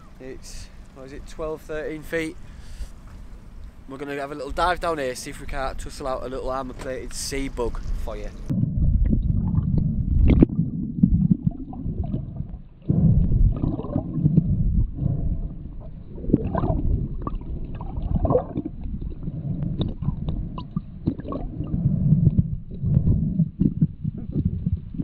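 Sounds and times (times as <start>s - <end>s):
muffled underwater rumble: 7.7s - 25.0s
bursts of bubbles: 8.5s - 25.0s
small underwater clicks: 15.8s - 25.0s.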